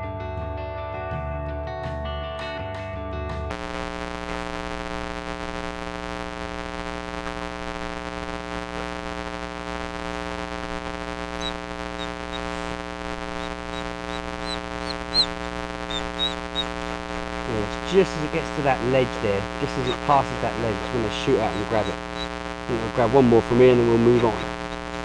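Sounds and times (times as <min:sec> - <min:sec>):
steady electrical hum: 0:03.5 - 0:25.0
high-pitched bird chirps: 0:11.4 - 0:12.6, 0:13.3 - 0:16.7.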